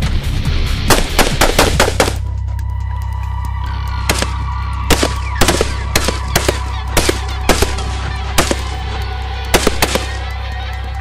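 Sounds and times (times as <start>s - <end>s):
gunshots: 0.9s - 2.2s, 4.1s - 8.8s, 9.5s - 10.2s.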